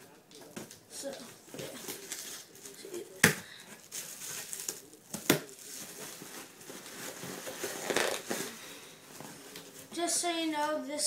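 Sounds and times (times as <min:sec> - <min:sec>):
cardboard box rustling and crinkling: 0:05.6 - 0:08.6.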